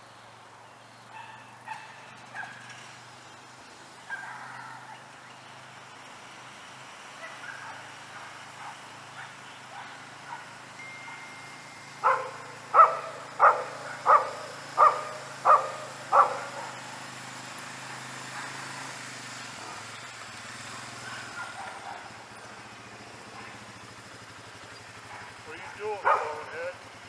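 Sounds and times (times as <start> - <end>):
dog barking: 1.1 - 2.7, 4.1 - 5.1, 7.2 - 11.3, 12.0 - 16.8, 18.0 - 18.8, 21.0 - 22.2, 23.3 - 23.6, 25.0 - 26.7.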